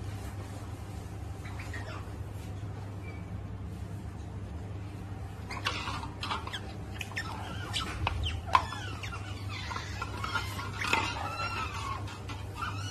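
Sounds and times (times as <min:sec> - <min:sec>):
otters squeaking and chirping: 0:01.2 - 0:03.3, 0:05.3 - 0:12.9.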